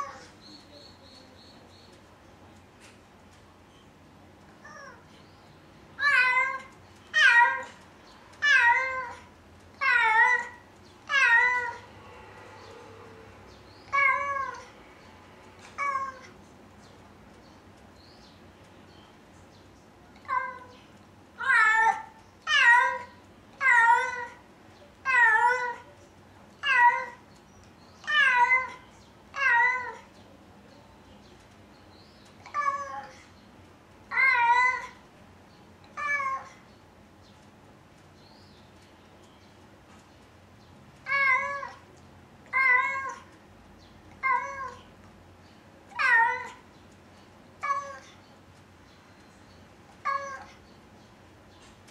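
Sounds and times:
cat meowing: 6.0 - 7.8, 8.4 - 11.9, 13.9 - 14.8, 15.6 - 16.3, 20.2 - 20.7, 28.0 - 30.1, 34.1 - 35.0, 36.0 - 36.6, 41.0 - 41.8, 42.5 - 43.4, 44.2 - 44.9, 45.9 - 46.6, 47.6 - 48.2, 50.0 - 50.6.

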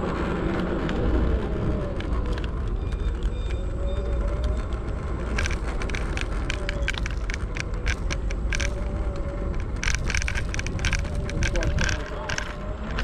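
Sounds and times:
electric scooter rumbling over pavement: 0.0 - 13.0
scooter rattling clicks: 1.9 - 13.0.

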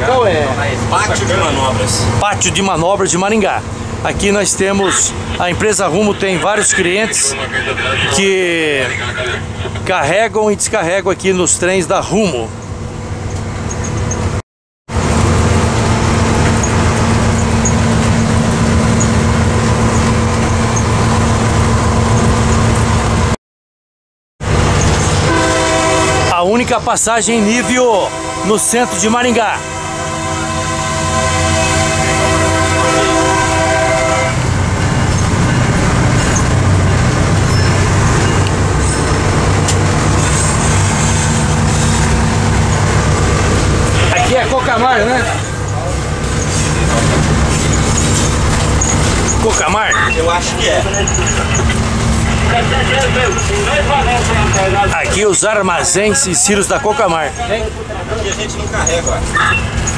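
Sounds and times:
diesel locomotive engine running: 0.0 - 23.4, 24.4 - 59.9
train rumbling on track: 0.0 - 23.4, 24.4 - 59.9
locomotive air horn: 25.2 - 26.5, 27.3 - 34.6.

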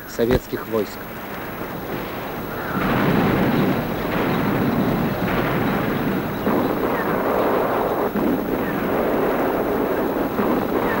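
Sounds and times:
rumbling tanks: 0.0 - 11.0
shell bursts: 0.0 - 11.0.

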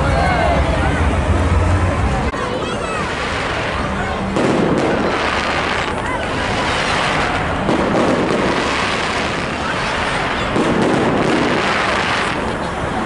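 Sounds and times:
crowd chatter: 0.0 - 13.0
fireworks bursting and crackling: 2.8 - 13.0.

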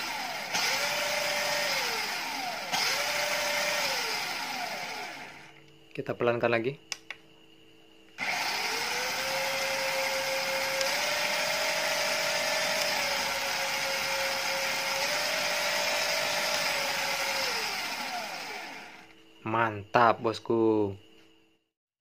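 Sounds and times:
electric motors whining: 0.0 - 5.7, 8.2 - 19.2.

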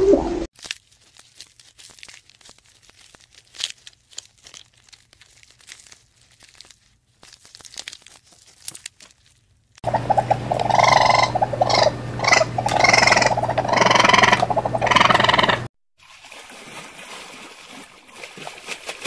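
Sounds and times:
giraffe chewing leaves: 0.6 - 15.5
loud animal calls: 9.9 - 15.7.

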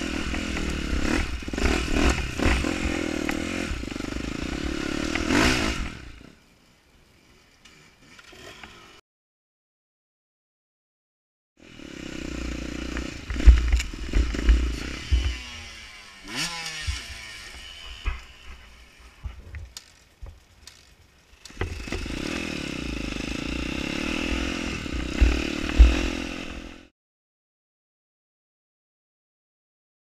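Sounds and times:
dirt bike engine revving: 0.0 - 6.4, 7.7 - 9.0, 11.6 - 19.4, 21.3 - 26.9.

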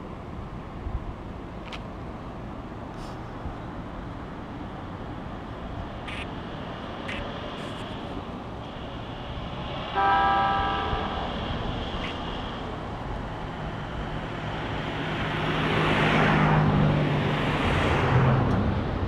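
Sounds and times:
train running noise: 0.0 - 19.0
train horn blast: 9.9 - 11.4.

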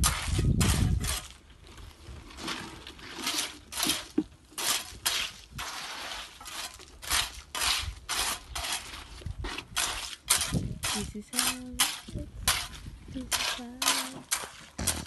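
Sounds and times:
shovel scraping gravelly concrete: 0.0 - 15.0.

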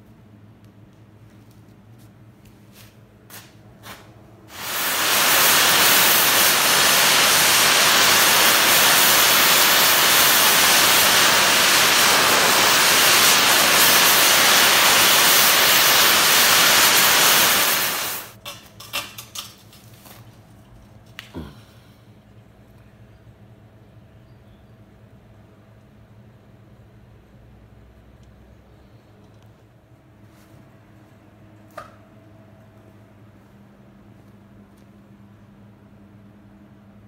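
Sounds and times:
welding arc hissing: 4.5 - 18.4.

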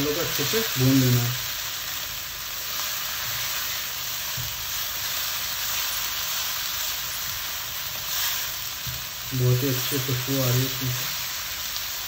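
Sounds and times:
spices sizzling in hot oil: 0.0 - 12.0
spatula stirring in pan: 0.3 - 10.1.

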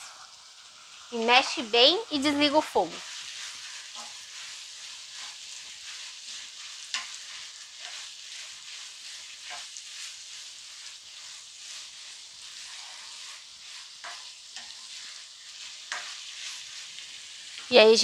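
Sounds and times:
meat sizzling in a frying pan: 0.0 - 18.0
spatula scraping a pan: 2.4 - 17.7
spatula tapping on pan: 6.9 - 7.2, 14.0 - 14.8.

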